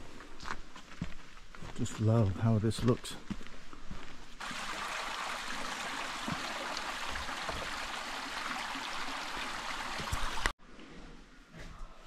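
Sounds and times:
stream water rushing: 4.4 - 10.5.

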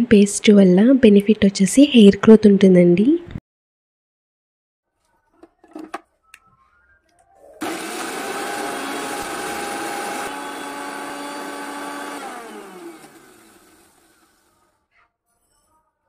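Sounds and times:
mixer grinder motor whining: 7.6 - 14.7.

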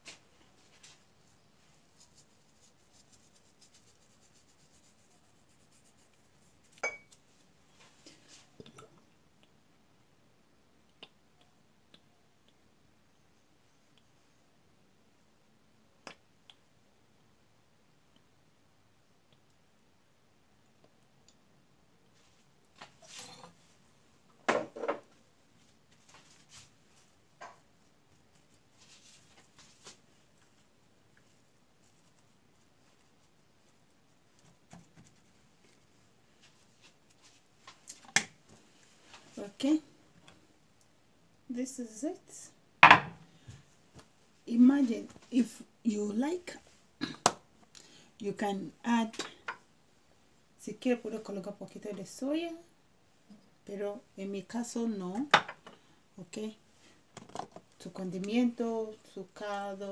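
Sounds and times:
kitchen clink with ring: 6.8 - 7.2.

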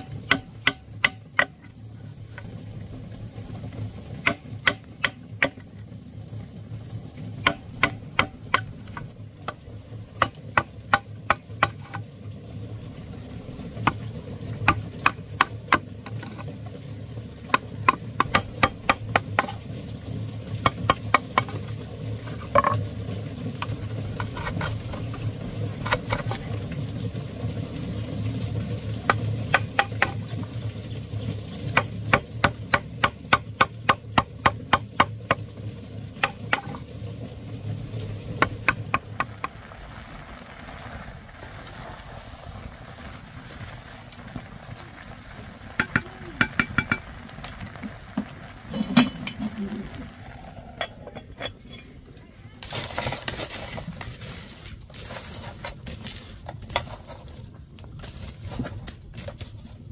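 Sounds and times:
low hum: 35.6 - 52.6.

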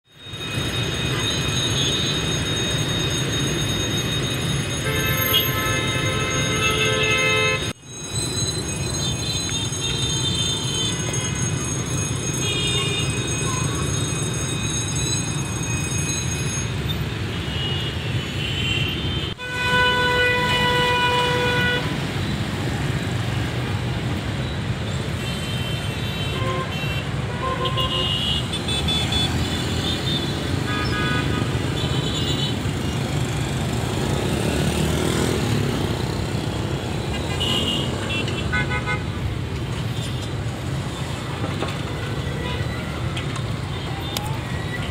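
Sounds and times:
motorbike and car traffic: 0.1 - 44.9.

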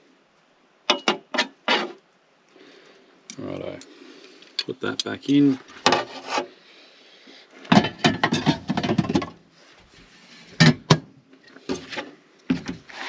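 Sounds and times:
metal tray clattering: 7.7 - 9.4.

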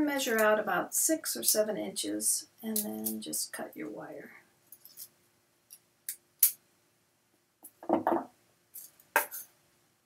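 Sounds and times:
cutters knocking on wooden tabletop: 7.8 - 8.3.

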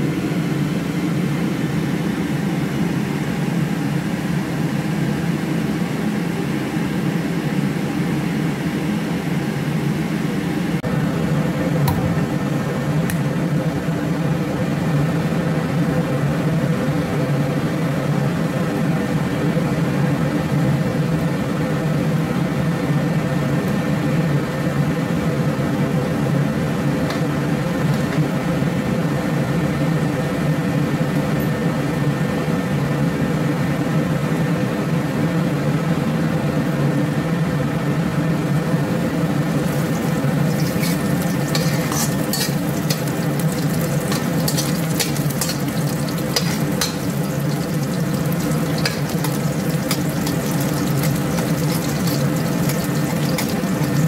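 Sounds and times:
steady mechanical hum: 0.0 - 54.0
garlic sizzling in hot oil: 39.3 - 54.0
metal spatula scraping wok: 39.5 - 54.0.

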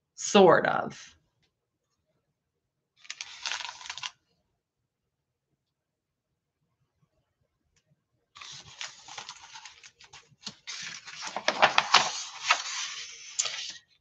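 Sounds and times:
paper page rustling: 3.0 - 4.2, 8.4 - 14.0.

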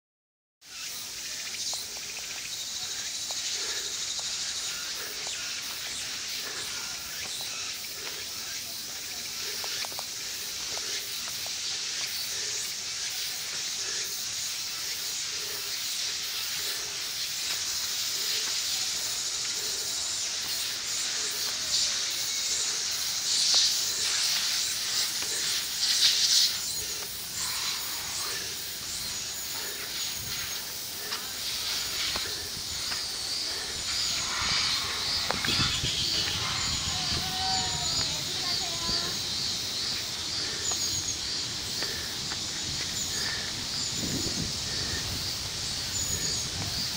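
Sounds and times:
insects hissing: 0.6 - 46.9
birds chirping: 0.7 - 46.9
footsteps on dirt and stone: 29.0 - 39.1.

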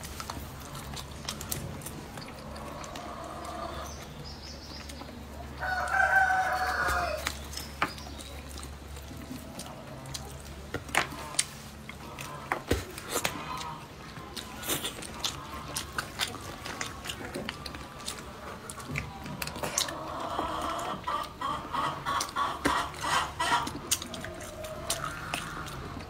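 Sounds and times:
eating clicks and smacks: 0.0 - 5.2, 7.2 - 20.0, 22.0 - 26.0
rooster crowing: 5.6 - 7.3.

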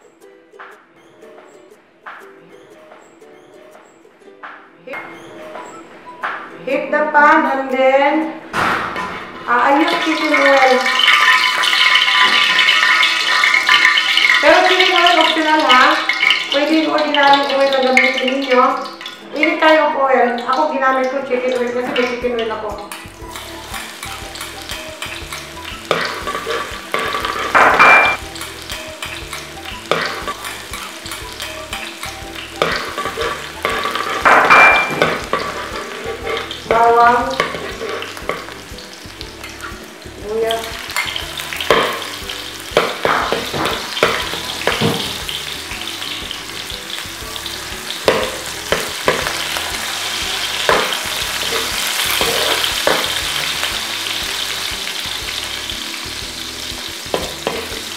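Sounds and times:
garlic sizzling in oil: 9.4 - 57.9
spatula scraping a wok: 23.2 - 27.6, 29.0 - 34.3, 35.0 - 38.6, 48.2 - 53.7.

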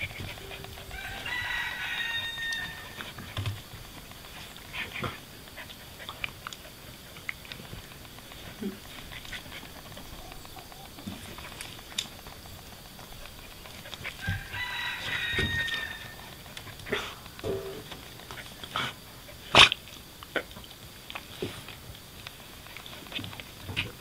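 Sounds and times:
thin high whine: 0.0 - 4.6, 17.2 - 18.4
dogs growling: 0.0 - 24.0.

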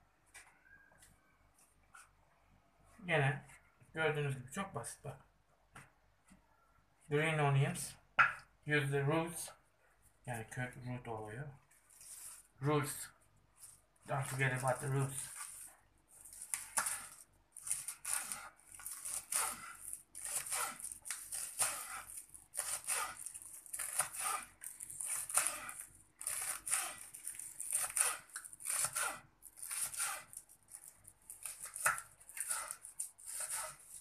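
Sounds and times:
knife chopping on wooden board: 16.3 - 30.3, 31.4 - 34.0.

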